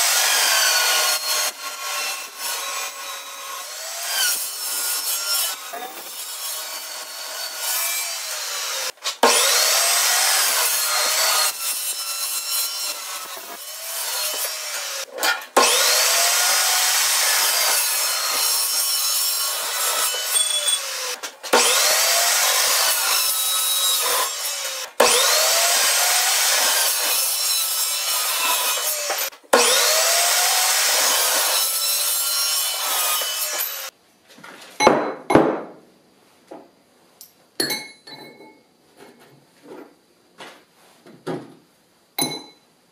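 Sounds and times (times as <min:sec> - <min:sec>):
chop saw cutting metal: 0:00.0 - 0:33.9.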